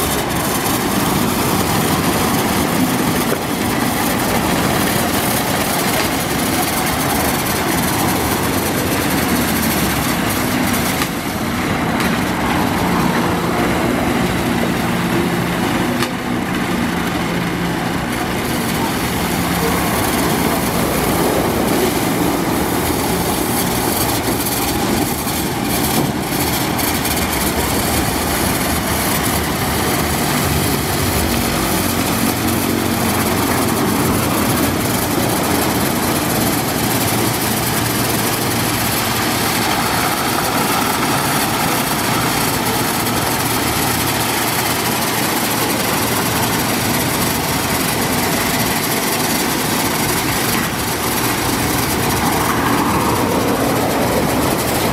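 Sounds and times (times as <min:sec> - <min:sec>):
motors humming: 0:00.0 - 0:54.9
water spraying: 0:00.0 - 0:54.9.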